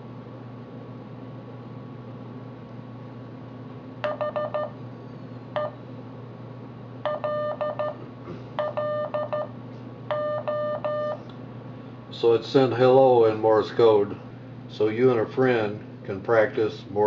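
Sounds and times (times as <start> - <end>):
morse code beeping tone: 4.0 - 4.8, 7.1 - 8.0, 8.6 - 9.5, 10.1 - 11.2.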